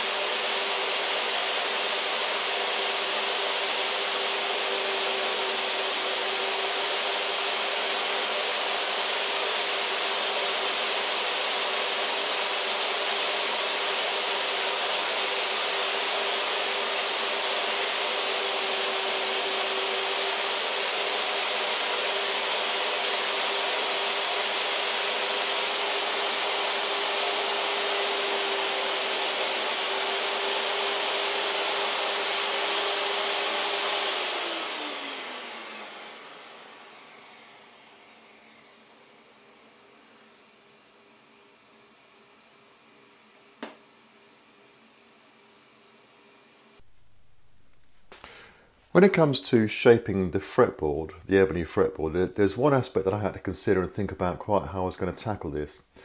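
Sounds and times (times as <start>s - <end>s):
saw winding down: 0.0s - 40.4s
table saw motor whining: 0.0s - 48.5s.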